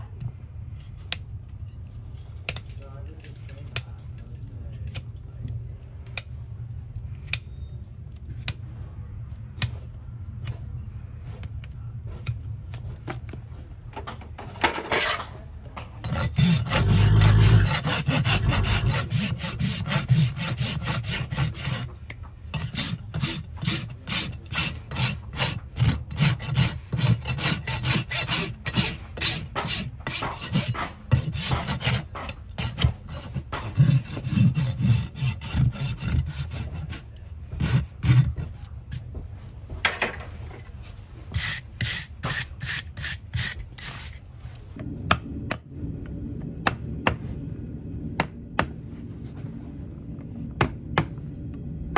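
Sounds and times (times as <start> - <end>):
rasp filing a hoof: 14.6 - 15.4, 16.0 - 39.1, 41.3 - 44.3.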